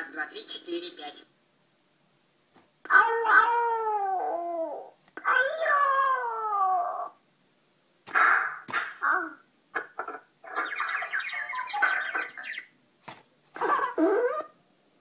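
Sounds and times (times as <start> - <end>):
toy cat wailing through speaker: 2.9 - 7.2, 13.6 - 14.6.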